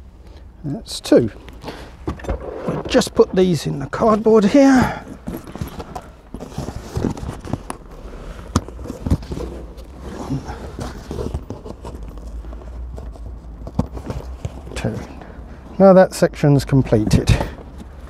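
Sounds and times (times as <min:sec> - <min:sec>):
bolts clicking and knocking: 0:12.9 - 0:15.3, 0:16.7 - 0:18.0.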